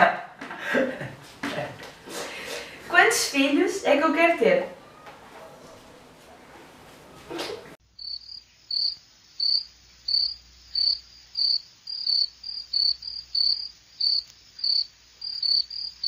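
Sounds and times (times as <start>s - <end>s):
cricket chirping: 7.8s - 16.0s.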